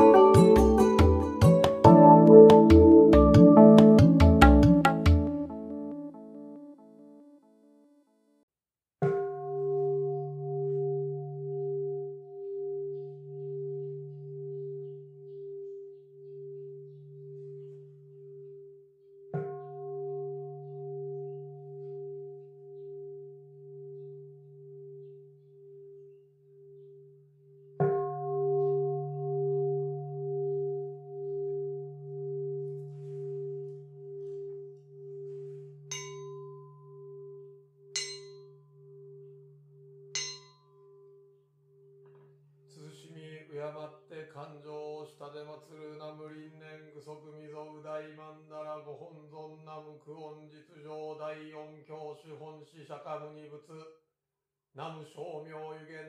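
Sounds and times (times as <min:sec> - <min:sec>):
bowl bell ringing: 0:00.0 - 0:04.2, 0:09.1 - 0:42.8
lighter brighter bell strikes: 0:31.2 - 0:39.4, 0:40.1 - 0:41.3.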